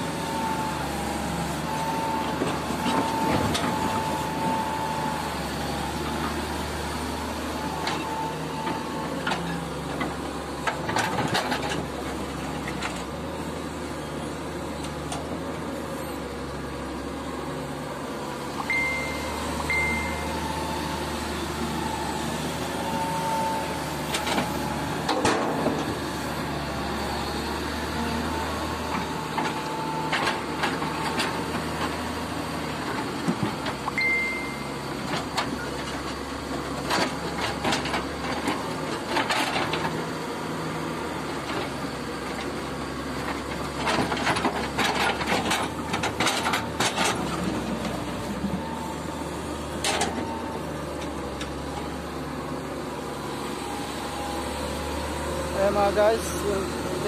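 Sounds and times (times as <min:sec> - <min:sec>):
excavator diesel engine running: 0:00.0 - 0:57.0
short high beeps: 0:18.7 - 0:20.5, 0:33.9 - 0:34.8.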